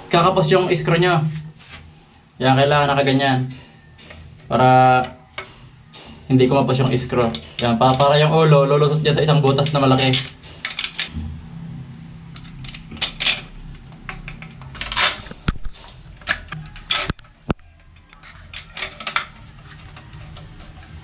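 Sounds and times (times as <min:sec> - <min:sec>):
screwdriver scraping and clicking: 0:14.1 - 0:21.0.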